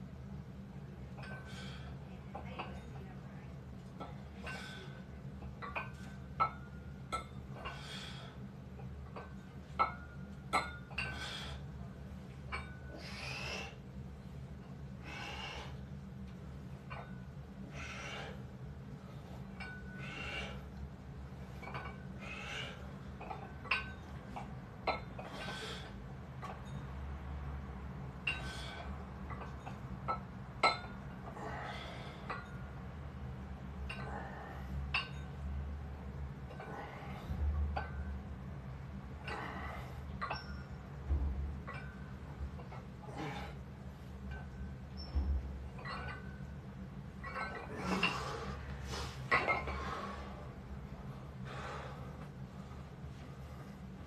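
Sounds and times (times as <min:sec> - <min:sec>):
weight plates clinking: 0:01.1 - 0:01.8, 0:08.8 - 0:11.5, 0:19.3 - 0:20.5, 0:21.4 - 0:25.8, 0:28.2 - 0:32.7, 0:33.8 - 0:35.4, 0:39.2 - 0:48.6, 0:49.2 - 0:50.2
heavy breaths out: 0:07.6 - 0:08.4, 0:11.0 - 0:11.7, 0:15.0 - 0:15.9, 0:17.7 - 0:18.5, 0:19.2 - 0:20.7, 0:22.2 - 0:23.0, 0:25.2 - 0:26.0, 0:31.3 - 0:32.4, 0:43.0 - 0:43.6, 0:47.6 - 0:50.5, 0:51.1 - 0:52.3
soft clatter and rustling: 0:18.3 - 0:27.0, 0:39.2 - 0:54.0.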